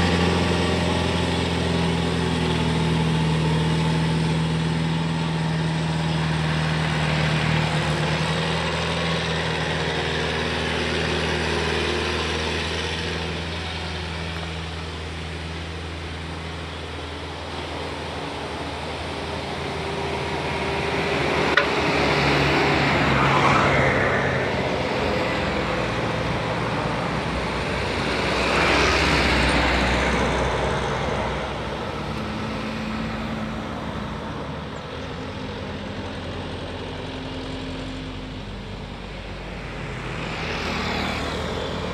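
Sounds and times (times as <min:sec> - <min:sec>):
truck engine climbing: 0:00.0 - 0:41.9
vehicle passing by: 0:00.0 - 0:41.9
motorcycle passing: 0:17.8 - 0:41.9.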